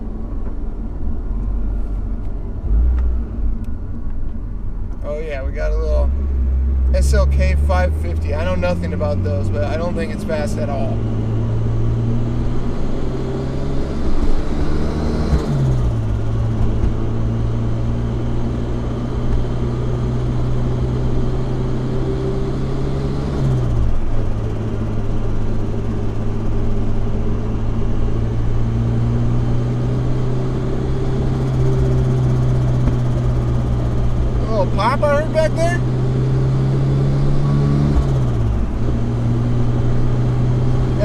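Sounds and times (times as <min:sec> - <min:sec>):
car engine accelerating: 0:00.0 - 0:41.0.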